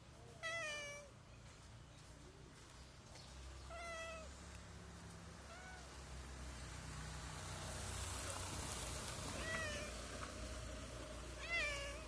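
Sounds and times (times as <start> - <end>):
cat meowing: 0.3 - 1.2, 3.7 - 4.3, 5.4 - 5.9, 9.3 - 10.0, 11.4 - 12.0.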